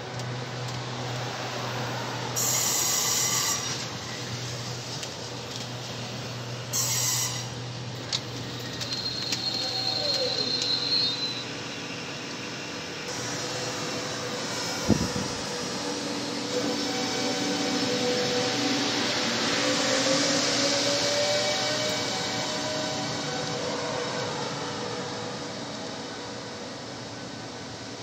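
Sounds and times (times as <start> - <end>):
electric train low hum: 0.0 - 28.0
high wheel squeal: 2.4 - 4.3, 6.7 - 7.6, 8.6 - 12.2, 16.4 - 23.9.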